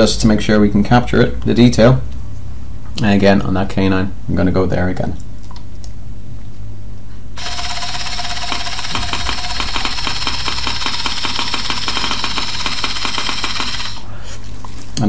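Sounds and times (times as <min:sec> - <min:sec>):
fast even rattle: 0:07.4 - 0:14.1
low hum: 0:07.4 - 0:14.3
scanner whirring hiss: 0:07.4 - 0:14.4.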